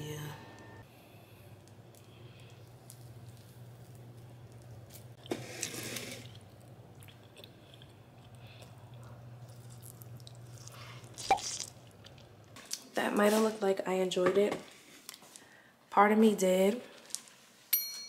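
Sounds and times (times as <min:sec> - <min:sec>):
person chewing wet fruit: 0:01.5 - 0:12.8.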